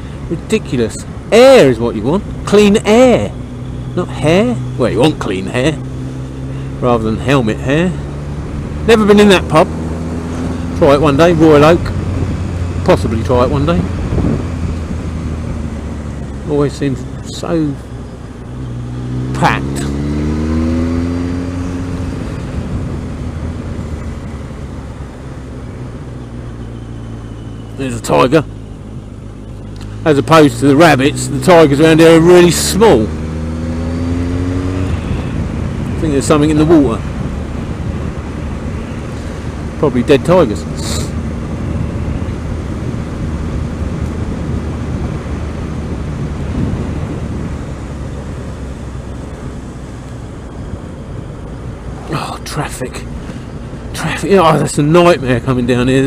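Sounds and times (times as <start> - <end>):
motorcycle engine drone: 0.0 - 56.0
wind rushing over microphone: 8.0 - 26.9, 33.0 - 55.9
wind rushing: 11.8 - 17.2.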